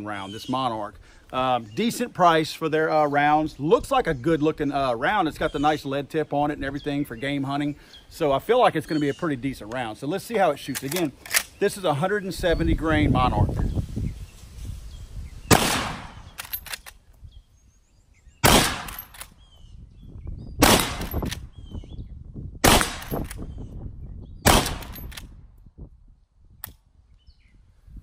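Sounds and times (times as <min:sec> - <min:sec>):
rifle shots: 0:15.5 - 0:16.6, 0:18.4 - 0:19.3, 0:20.6 - 0:21.4, 0:22.6 - 0:23.3, 0:24.4 - 0:25.2.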